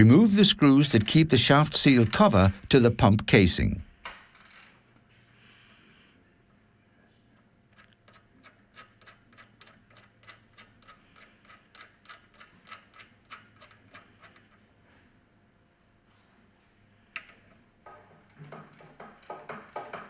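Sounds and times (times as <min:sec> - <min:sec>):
metallic ticking of screw turning: 0:00.0 - 0:02.8, 0:07.7 - 0:14.5.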